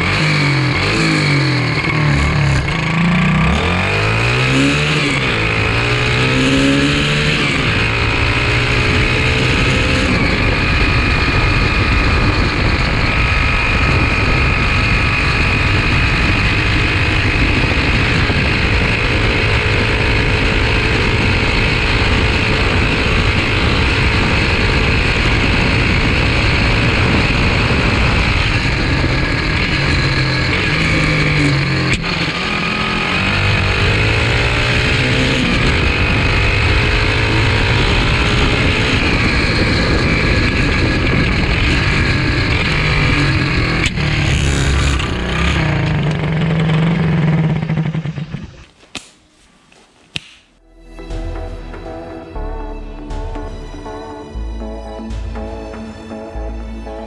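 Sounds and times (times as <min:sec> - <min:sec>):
dirt bike engine revving: 0:00.0 - 0:48.7
wind on microphone: 0:00.0 - 0:48.7.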